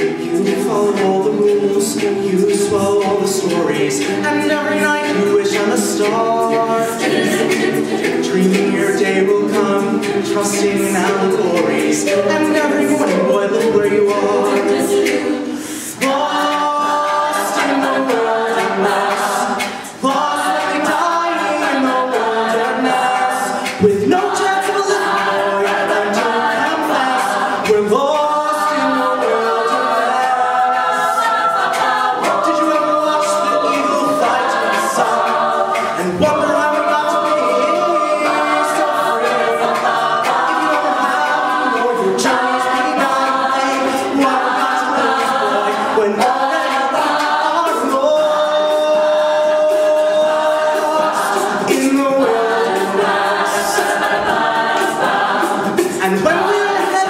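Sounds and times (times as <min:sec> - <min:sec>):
backing vocal harmonies: 0:00.0 - 0:57.0
male lead singing: 0:55.9 - 0:57.0.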